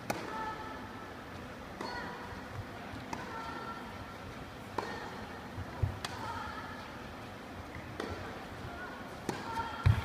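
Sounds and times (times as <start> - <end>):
tennis racket hitting ball: 1.8 - 2.2, 4.7 - 5.2, 7.9 - 8.3, 9.2 - 10.0
tennis ball bouncing thud: 4.8 - 5.2, 7.8 - 8.3, 9.2 - 10.0.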